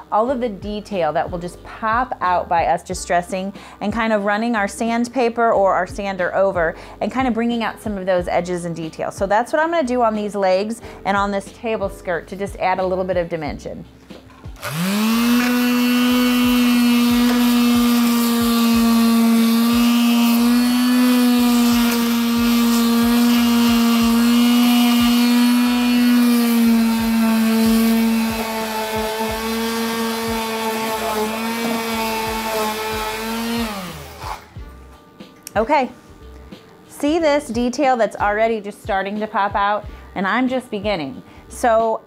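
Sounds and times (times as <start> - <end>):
electric sander on wood: 14.5 - 34.6.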